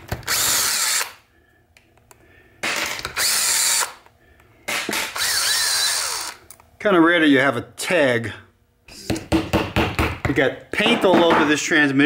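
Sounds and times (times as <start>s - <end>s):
power drill spinning: 0.1s - 1.2s, 2.6s - 4.1s, 4.9s - 6.5s.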